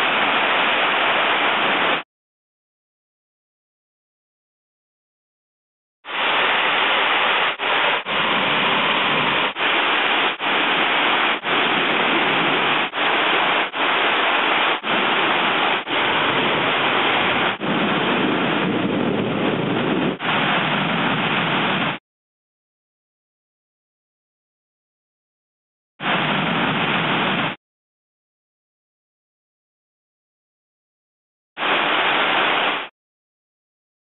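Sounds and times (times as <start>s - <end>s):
heavy rain pouring: 0.0s - 2.0s, 6.0s - 22.0s, 26.0s - 27.6s, 31.6s - 32.9s.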